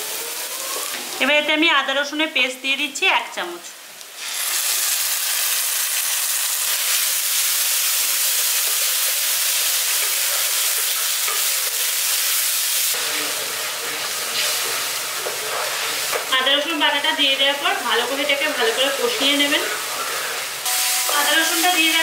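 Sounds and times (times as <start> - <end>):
paste sizzling in hot oil: 4.1 - 16.3, 17.6 - 22.0.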